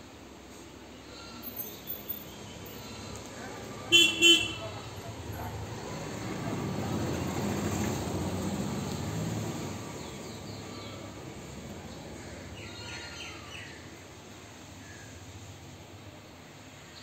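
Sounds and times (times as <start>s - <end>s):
street noise: 0.0s - 17.0s.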